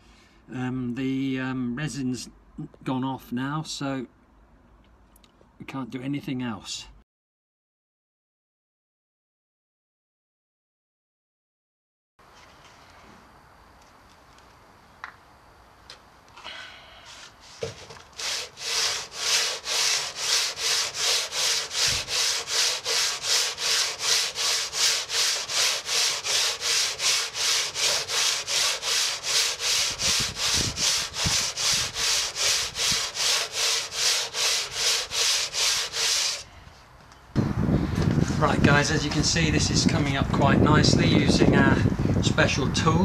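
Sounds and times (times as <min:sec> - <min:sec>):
sandpaper rasping on resin: 0:17.2 - 0:36.4.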